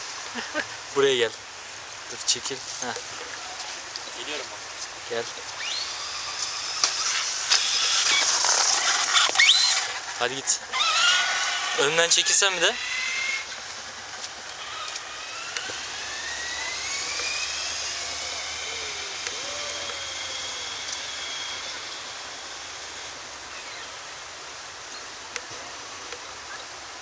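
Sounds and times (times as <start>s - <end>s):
electric motor whining: 2.8s - 24.0s.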